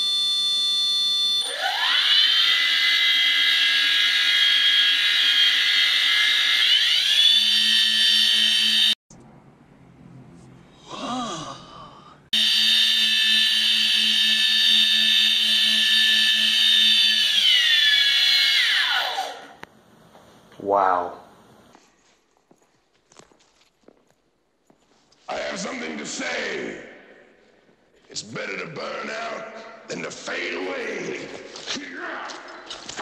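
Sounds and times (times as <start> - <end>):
electric motors whining: 0.2 - 9.0, 12.4 - 19.7.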